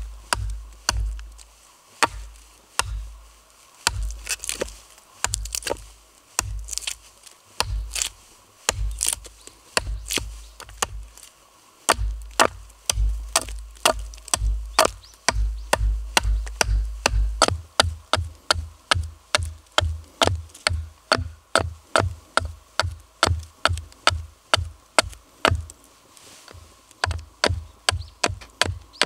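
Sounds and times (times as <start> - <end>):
low regular thumping beat: 0.0 - 1.4, 2.0 - 4.3, 6.4 - 6.8, 7.6 - 8.1, 8.7 - 9.2, 9.8 - 11.1, 11.9 - 24.8
hatchet chopping wood: 0.0 - 3.2, 3.8 - 7.0, 7.6 - 11.2, 11.9 - 25.7, 27.0 - 29.0.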